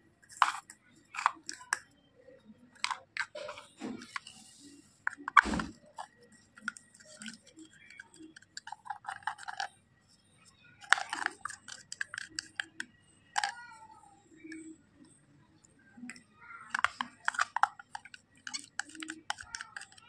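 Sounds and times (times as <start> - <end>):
spatula scraping plastic pot: 0.3 - 1.8, 2.8 - 9.8, 10.8 - 13.6, 16.1 - 20.0.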